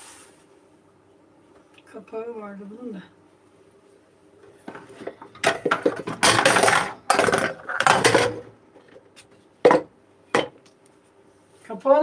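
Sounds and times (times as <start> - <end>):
metal pots and lids clattering: 4.7 - 8.5.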